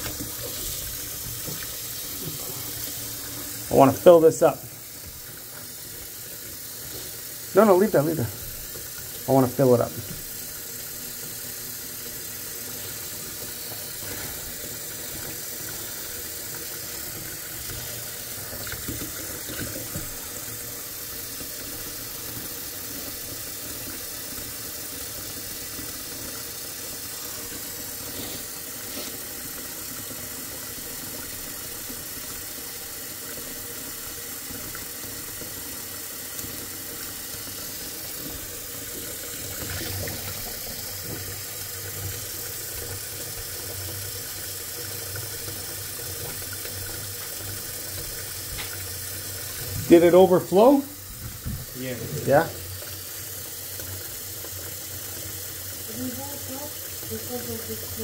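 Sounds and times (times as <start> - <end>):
faucet running into sink: 0.0 - 58.0.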